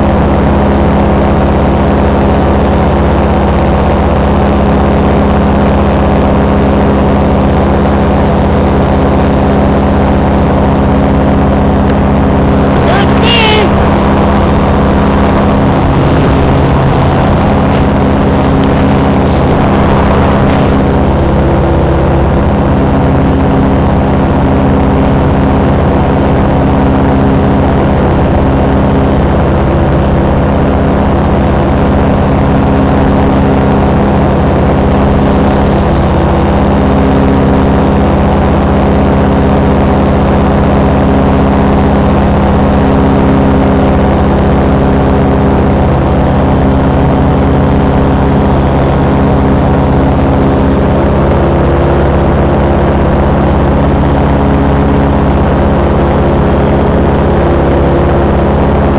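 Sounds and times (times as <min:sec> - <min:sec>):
paramotor engine and propeller: 0:00.0 - 0:58.9.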